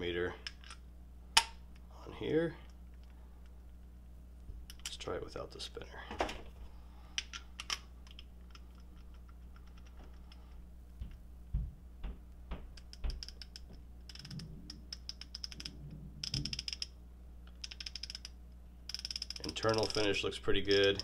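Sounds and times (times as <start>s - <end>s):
ratchet pawl clicking: 12.9s - 16.9s, 17.6s - 18.3s, 18.9s - 21.0s.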